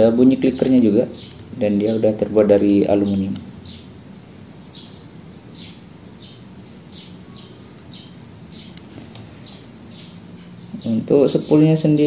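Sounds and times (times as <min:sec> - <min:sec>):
small bird chirping: 0:00.3 - 0:12.0
sharp tick: 0:00.6 - 0:03.5, 0:08.7 - 0:09.3.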